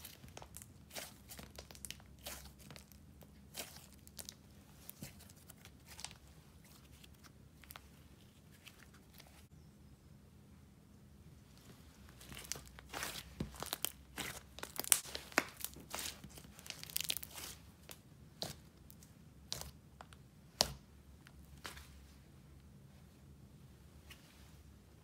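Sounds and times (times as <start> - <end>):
slime crackling and popping: 0.0 - 5.1, 12.1 - 19.8.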